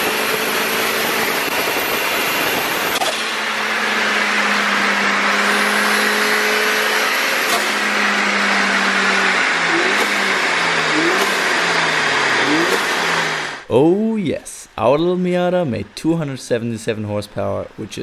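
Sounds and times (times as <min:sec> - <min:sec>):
turbocharged car engine revving: 0:00.0 - 0:13.7.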